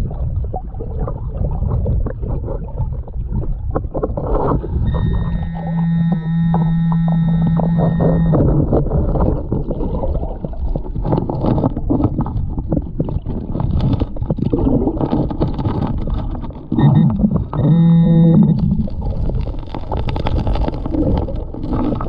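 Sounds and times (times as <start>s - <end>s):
water churning underwater: 0.0s - 22.0s
humming tone: 4.7s - 8.9s, 16.7s - 19.0s
stones clicking and scraping: 18.9s - 22.0s.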